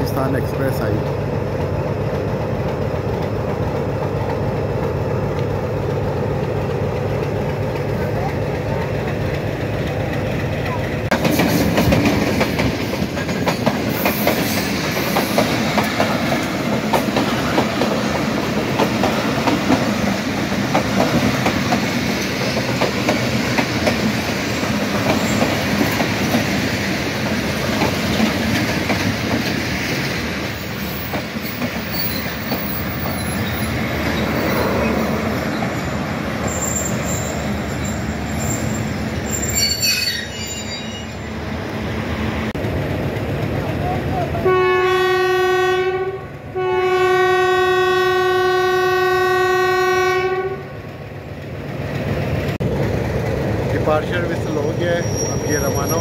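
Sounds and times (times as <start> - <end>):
train wheels clattering over joints: 6.4 - 35.8
high wheel squeals: 30.7 - 41.4, 54.8 - 56.0.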